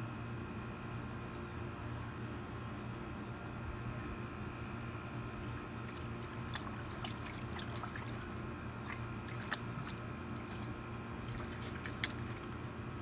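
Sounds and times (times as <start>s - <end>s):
steady low hum: 0.0s - 13.0s
water splashing in a plastic pool: 4.7s - 13.0s.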